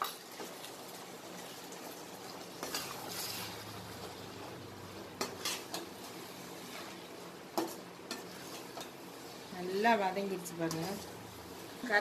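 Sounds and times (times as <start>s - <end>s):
ladle scraping a metal pot: 2.6s - 3.8s, 5.2s - 10.0s.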